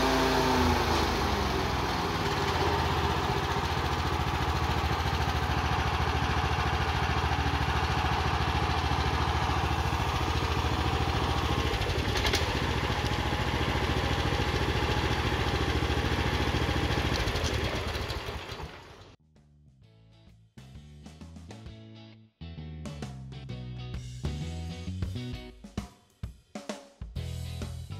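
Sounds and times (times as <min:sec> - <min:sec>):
stump grinder engine running: 0:00.0 - 0:19.2.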